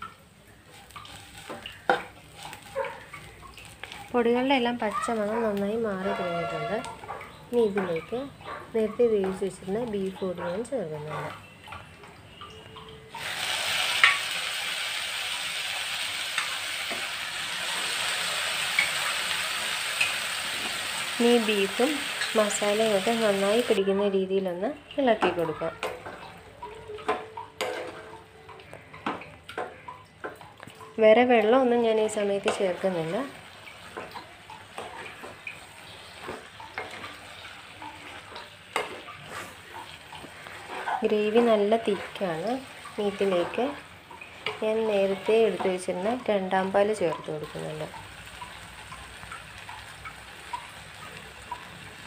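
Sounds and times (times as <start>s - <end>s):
light sizzle of frying: 0.0s - 52.0s
spatula scraping frying pan: 0.8s - 4.1s, 38.0s - 46.0s
meat sizzling in a hot pan: 13.1s - 23.8s.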